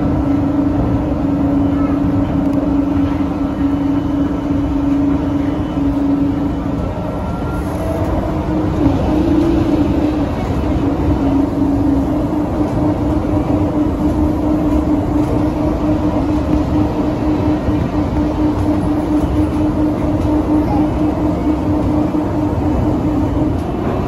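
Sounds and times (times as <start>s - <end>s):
train running rumble: 0.0s - 24.0s.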